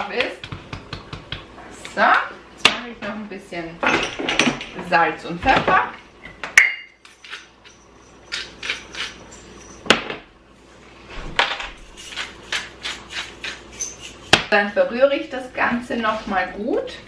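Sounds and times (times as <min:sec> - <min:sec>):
pepper mill grinding: 0:07.0 - 0:09.9, 0:11.8 - 0:14.3.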